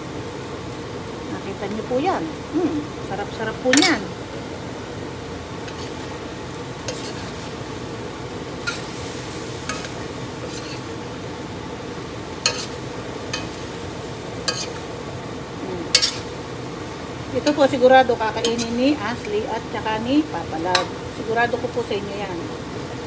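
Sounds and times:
food sizzling in a skillet: 0:00.0 - 0:23.0
spatula scraping a pan: 0:05.6 - 0:06.1, 0:06.8 - 0:07.6, 0:08.6 - 0:11.0, 0:12.4 - 0:13.8, 0:14.4 - 0:14.9, 0:15.9 - 0:16.4, 0:18.4 - 0:18.9.

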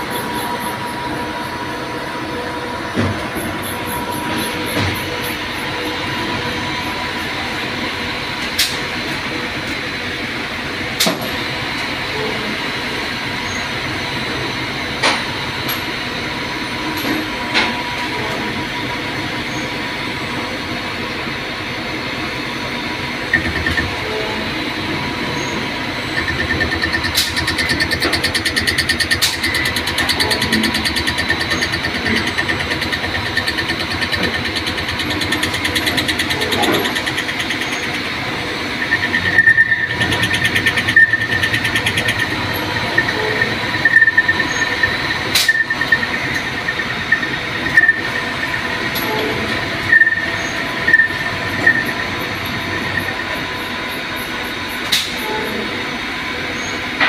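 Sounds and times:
lathe machine hum: 0:00.0 - 0:57.0
high ringing tone: 0:25.3 - 0:27.1, 0:37.7 - 0:41.6, 0:42.2 - 0:53.8
fast fine rattle: 0:26.2 - 0:38.0.

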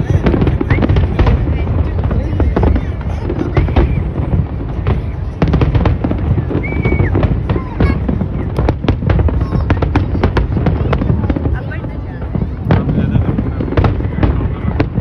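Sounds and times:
fireworks bangs and crackles: 0:00.0 - 0:15.0
firework whistle: 0:02.6 - 0:08.7.

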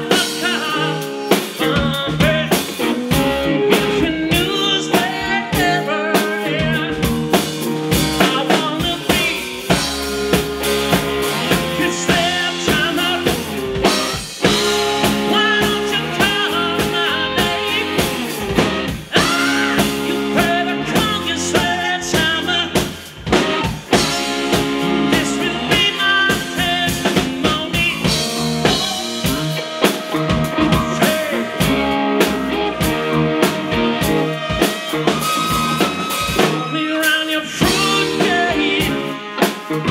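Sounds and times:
drum kit: 0:00.0 - 0:39.9
electric bass: 0:00.0 - 0:39.9
electric guitar: 0:00.0 - 0:39.9
trumpet: 0:09.1 - 0:22.2, 0:23.4 - 0:39.9
saxophone: 0:22.7 - 0:39.9.

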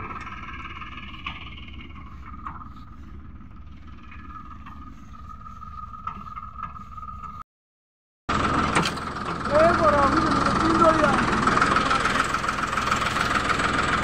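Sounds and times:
tractor diesel engine running: 0:00.0 - 0:07.4, 0:08.3 - 0:14.0.

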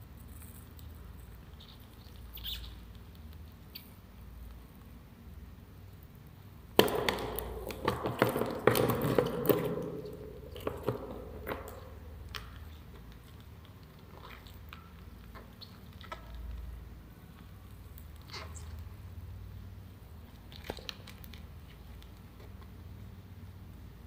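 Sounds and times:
wet crunching of chewing: 0:09.4 - 0:18.9.

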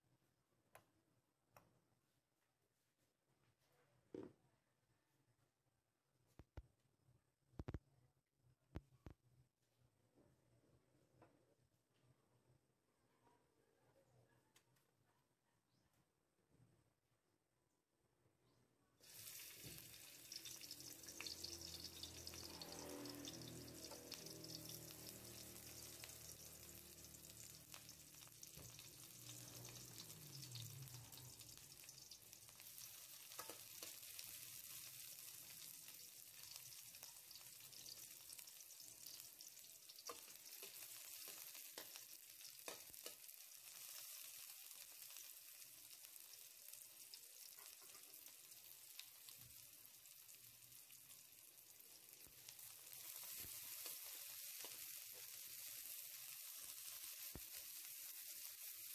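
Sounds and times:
onion frying in oil: 0:19.0 - 0:58.9.

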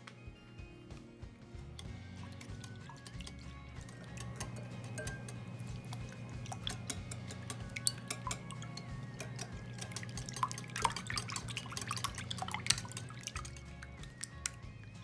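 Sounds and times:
soft background music: 0:00.0 - 0:15.0
liquid splashing: 0:01.8 - 0:15.0
whisk clicking against glass bowl: 0:01.8 - 0:15.0.

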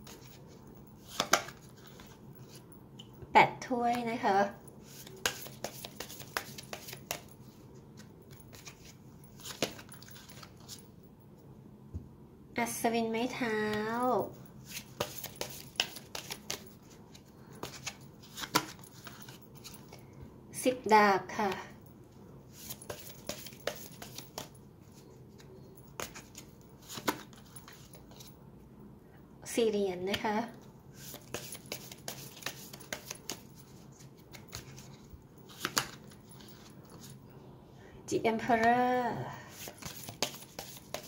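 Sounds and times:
cards being shuffled: 0:00.0 - 0:02.6, 0:04.8 - 0:07.3, 0:08.0 - 0:10.8, 0:14.6 - 0:19.8, 0:22.5 - 0:24.5, 0:25.4 - 0:28.3, 0:31.0 - 0:37.1, 0:39.5 - 0:41.0
cards clicking: 0:01.1 - 0:01.6, 0:05.0 - 0:07.3, 0:15.0 - 0:16.6, 0:17.6 - 0:19.3, 0:31.1 - 0:33.5, 0:35.5 - 0:36.0, 0:39.8 - 0:41.0.

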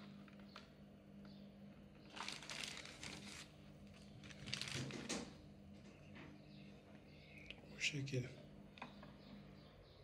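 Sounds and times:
plastic wrapping crinkling: 0:02.1 - 0:05.1.

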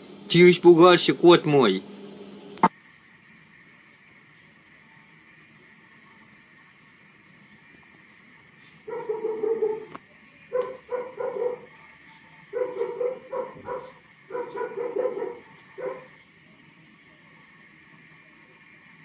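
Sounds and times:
toy dog electronic barking: 0:08.9 - 0:09.9, 0:10.5 - 0:11.8, 0:12.5 - 0:16.2.

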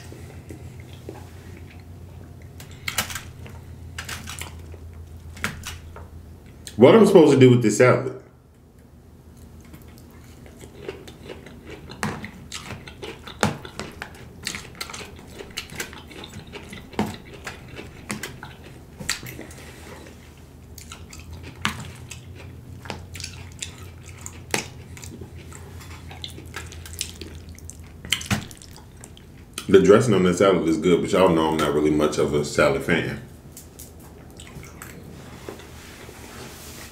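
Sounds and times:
steady low hum: 0:00.0 - 0:36.9
wet chewing and mouth clicks: 0:00.1 - 0:06.8, 0:09.3 - 0:29.7, 0:33.6 - 0:35.1.

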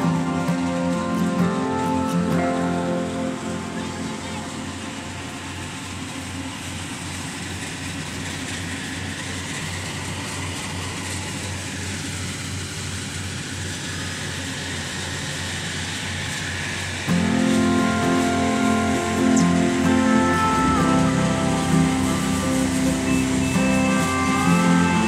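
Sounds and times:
combine harvester engine hum: 0:00.0 - 0:25.0
even rushing noise: 0:13.6 - 0:25.0.

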